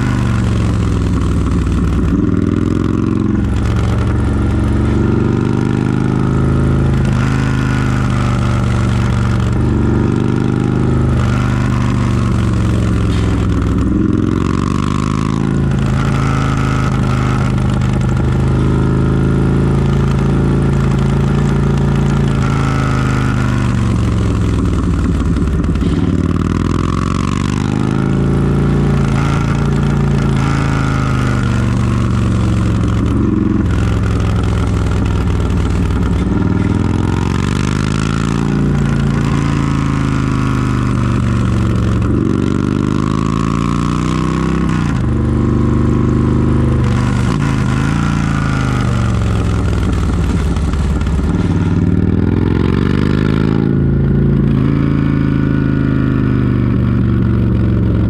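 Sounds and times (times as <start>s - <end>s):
motorcycle engine revving: 0.0s - 58.0s
steady low tone: 15.4s - 27.1s.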